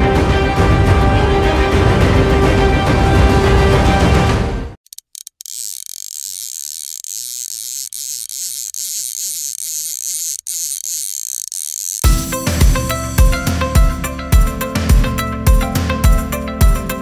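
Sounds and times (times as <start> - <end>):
music with drum hits: 12.0 - 17.0.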